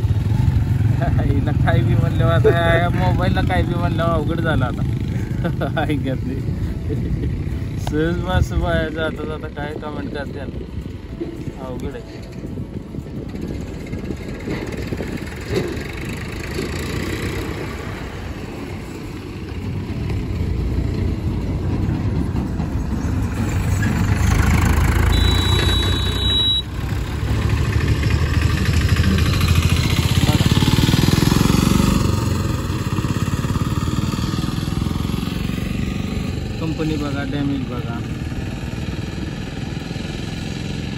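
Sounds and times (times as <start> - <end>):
motorcycle engine running: 0.0 - 40.9
short high beep: 25.1 - 26.7.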